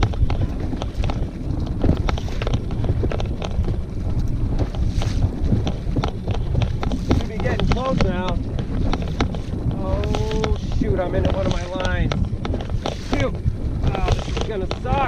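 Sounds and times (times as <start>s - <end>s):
dinghy knocking on waves: 0.0s - 15.0s
outboard motor running: 0.0s - 15.0s
wind buffeting microphone: 0.0s - 15.0s.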